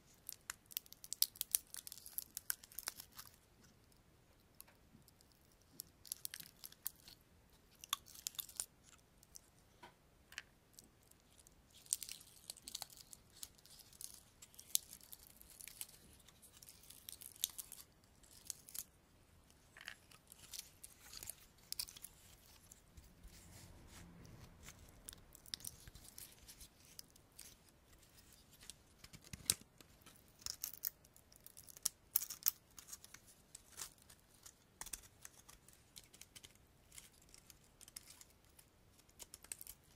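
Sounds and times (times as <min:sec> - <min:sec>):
pinecone scales crackling: 0:00.1 - 0:03.5, 0:04.6 - 0:09.4, 0:10.7 - 0:39.9
soft handling rustle: 0:11.1 - 0:31.0.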